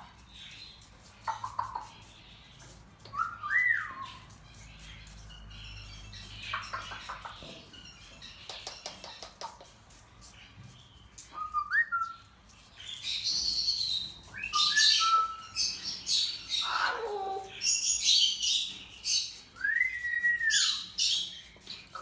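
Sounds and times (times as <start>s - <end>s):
cockatoo whistling calls: 3.1s - 4.3s, 11.3s - 12.2s, 14.4s - 15.6s, 19.6s - 21.0s.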